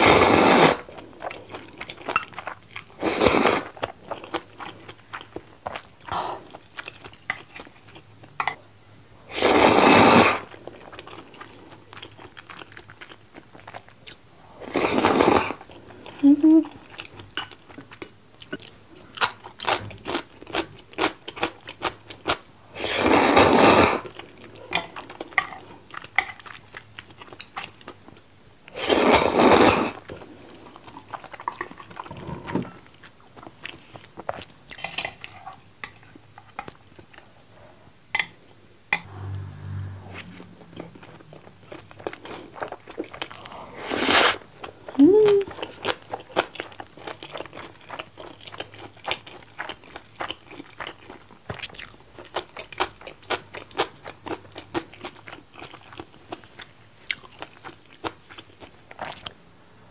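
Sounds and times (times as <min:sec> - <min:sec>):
closed-mouth hum: 0:38.9 - 0:42.4
rushes of noise: 0:39.0 - 0:41.7
crunchy chewing: 0:45.5 - 0:59.4.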